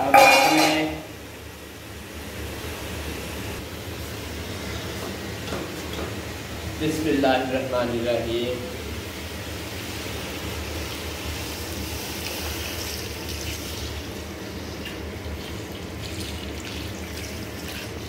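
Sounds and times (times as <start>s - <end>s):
water pouring into a pot: 9.6s - 18.0s.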